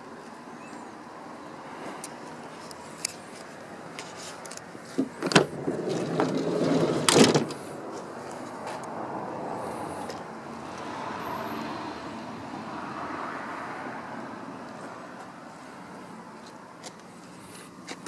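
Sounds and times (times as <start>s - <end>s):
sliding door rumbling along track: 5.2s - 7.7s.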